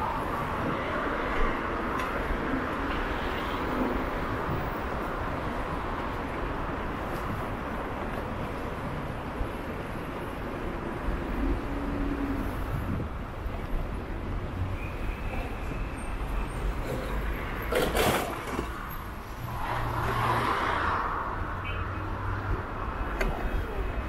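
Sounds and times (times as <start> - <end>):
road and wind rumble: 0.0 - 24.0
traffic: 0.0 - 24.0.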